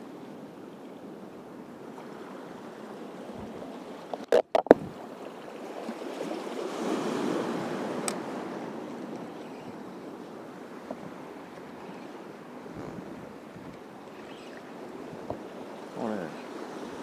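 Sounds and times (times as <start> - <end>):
small waves washing over reef: 1.6 - 17.0
sharp clicks or knocks: 4.1 - 4.8
wind on microphone: 4.3 - 5.0, 12.6 - 15.6.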